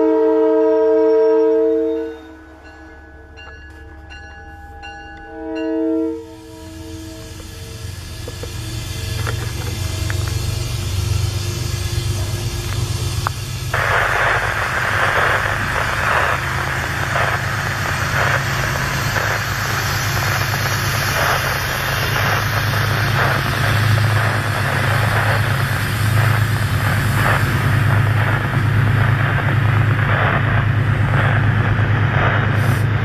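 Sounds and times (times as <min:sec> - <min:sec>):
train engine drone: 0:00.0 - 0:33.0
train wheels rushing and clattering: 0:07.2 - 0:33.0.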